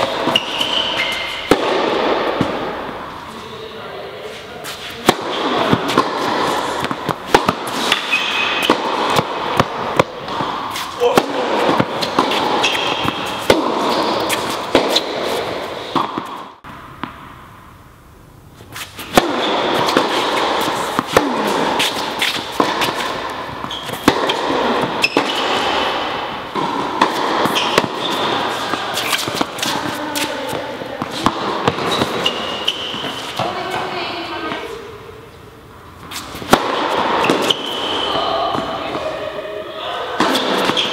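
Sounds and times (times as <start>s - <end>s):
tennis balls struck by rackets: 0.0s - 3.3s, 4.6s - 17.5s, 18.7s - 34.8s, 35.4s - 39.2s, 40.0s - 40.9s
indistinct voices: 37.8s - 40.9s.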